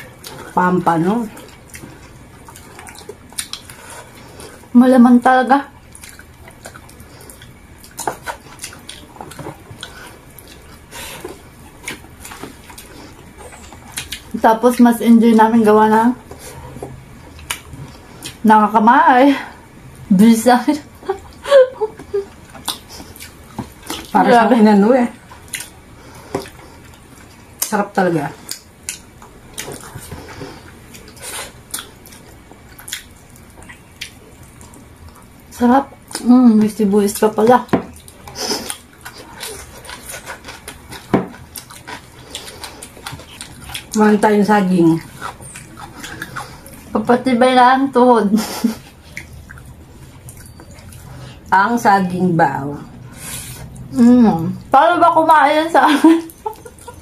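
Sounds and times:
wet chewing and lip-smacking: 0.0 - 4.7, 5.8 - 14.9, 16.2 - 18.4, 21.0 - 24.4, 25.2 - 47.0, 48.7 - 51.5, 53.1 - 53.9, 56.2 - 57.0.

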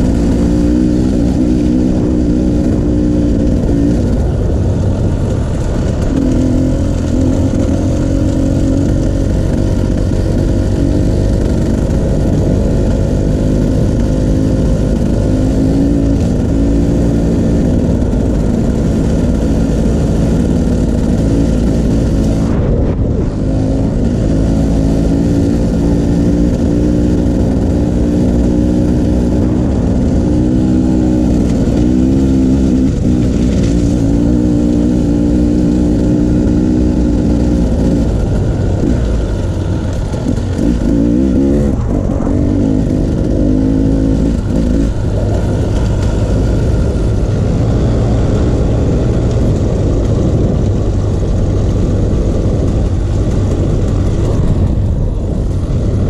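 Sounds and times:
dirt bike engine revving: 0.0 - 4.4, 5.5 - 55.9.

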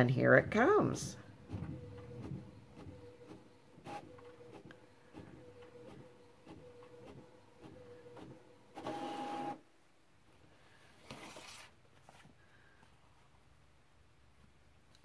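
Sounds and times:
inkjet printer humming: 1.2 - 9.6
printer motor whir: 1.3 - 9.6
paper sheet rustling: 11.0 - 12.3.

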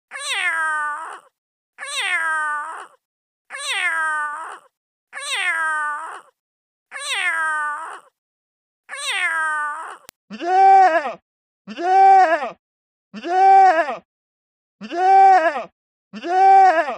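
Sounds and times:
cat meowing: 0.1 - 6.3, 6.9 - 8.1, 8.9 - 10.1.

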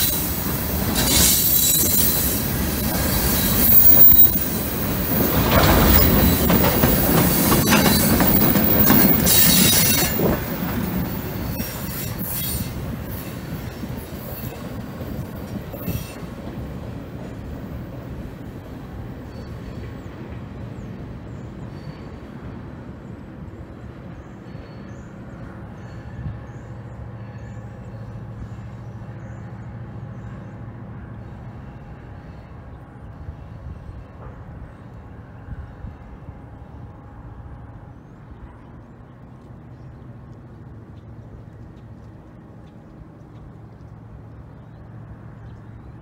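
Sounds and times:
diesel locomotive engine humming: 0.0 - 46.0.

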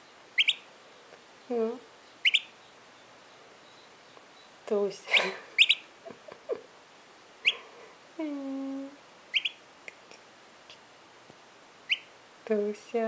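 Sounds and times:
turkey poult peeping: 0.1 - 1.0, 2.0 - 5.9, 7.4 - 7.7, 9.3 - 9.6, 11.8 - 12.2
person humming: 7.5 - 9.0.

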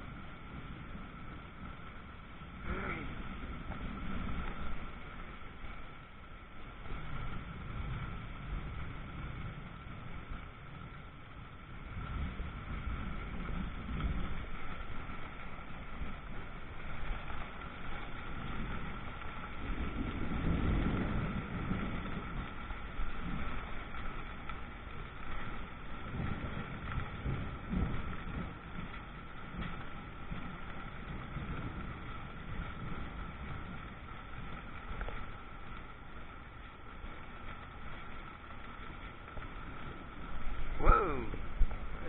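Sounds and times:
heavy rain: 0.0 - 42.0
low rumbling: 0.0 - 42.0.

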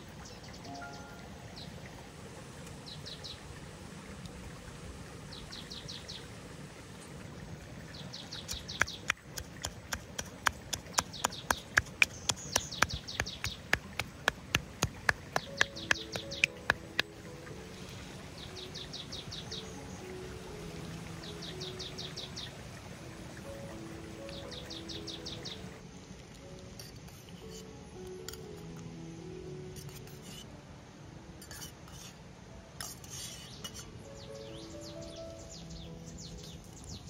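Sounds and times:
small birds trilling: 7.9 - 17.2, 18.2 - 20.4, 21.2 - 22.6, 23.4 - 25.8, 33.1 - 37.0
sharp evenly spaced taps: 8.4 - 17.3.

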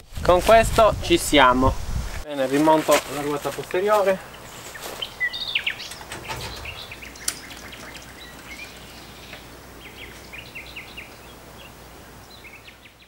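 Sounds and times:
outdoor background hiss: 0.0 - 13.0
birds chirping and trilling: 3.7 - 13.0.

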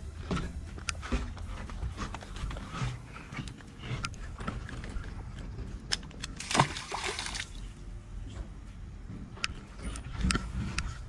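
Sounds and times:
eel splashing into water: 6.4 - 7.6.

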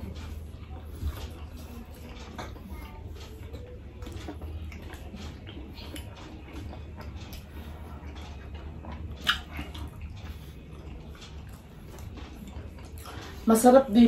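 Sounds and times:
wet chewing: 0.0 - 13.6
steady low hum: 0.0 - 14.0
lip smack: 9.2 - 9.8.

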